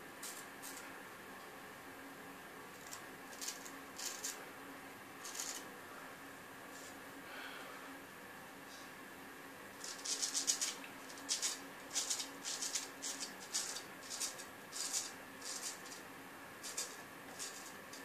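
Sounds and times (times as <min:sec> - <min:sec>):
razor scraping beard stubble: 0:02.8 - 0:04.4, 0:05.2 - 0:05.6, 0:09.8 - 0:16.0, 0:16.6 - 0:17.8.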